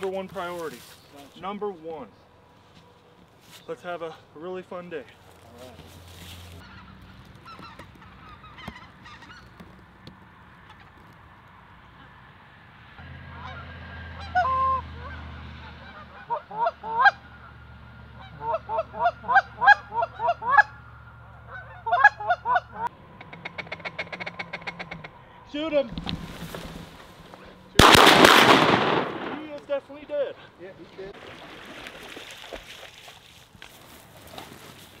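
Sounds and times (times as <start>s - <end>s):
geese honking: 3.8s - 9.9s, 13.0s - 28.7s.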